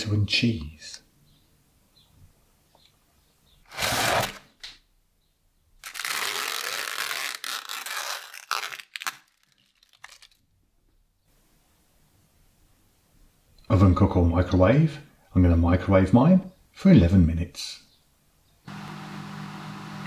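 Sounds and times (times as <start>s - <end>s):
plastic film tearing crackle: 3.7s - 4.5s, 5.8s - 10.5s
packaging rustle: 5.8s - 10.4s.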